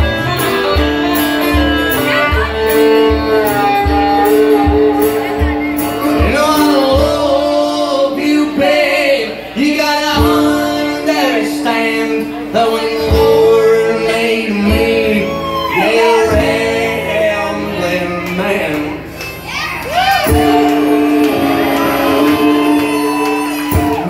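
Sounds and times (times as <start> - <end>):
fiddle: 0.0 - 6.5
acoustic guitar: 0.0 - 24.0
man and woman singing: 3.7 - 19.2, 20.2 - 24.0.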